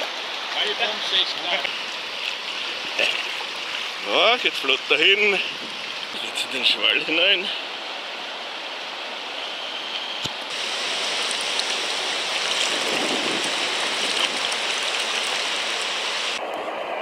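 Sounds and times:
whitewater rushing and hissing: 10.4 - 16.4.

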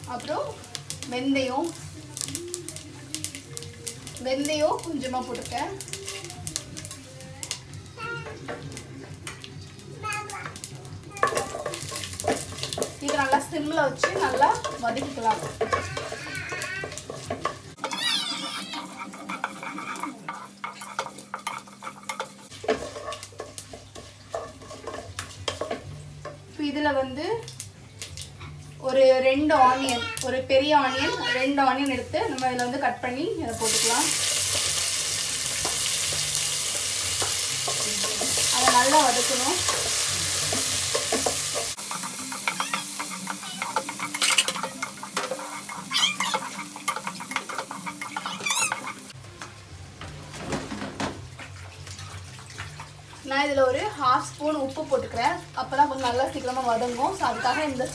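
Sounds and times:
light oil sizzle: 0.0 - 57.9
spatula scraping pot: 11.2 - 25.9, 35.6 - 49.2
spatula knocking pot: 11.2 - 26.5, 37.2 - 49.1.

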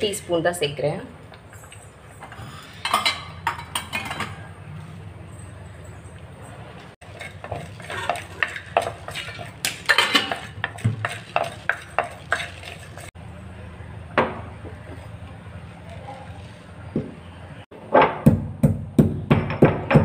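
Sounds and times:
wooden spoon scraping spices in pot: 7.0 - 13.2.

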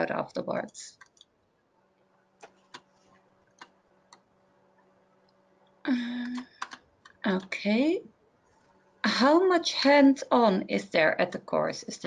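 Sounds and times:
low steady hum: 0.0 - 12.0
computer clicks: 6.2 - 7.5.

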